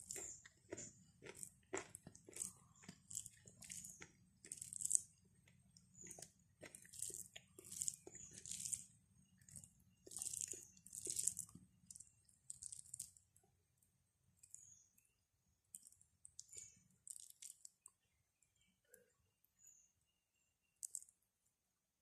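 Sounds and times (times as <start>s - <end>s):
fingers squelching rice: 0.0s - 13.2s.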